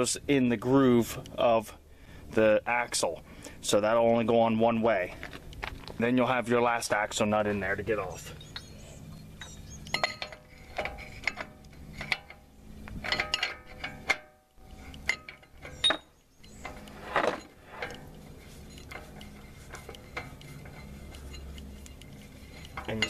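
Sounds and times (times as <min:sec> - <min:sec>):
metal nut clinking: 0:09.3 - 0:23.0.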